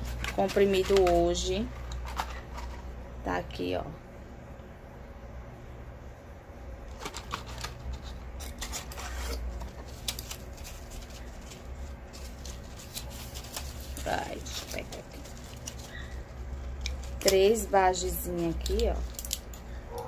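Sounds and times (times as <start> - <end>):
cardboard box rustling: 6.9 - 16.4
plastic blister packs clicking: 18.6 - 20.0.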